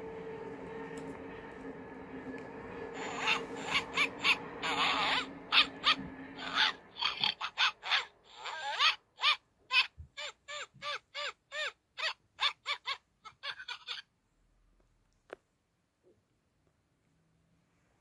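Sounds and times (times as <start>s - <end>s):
kittens mewing: 3.0s - 11.3s.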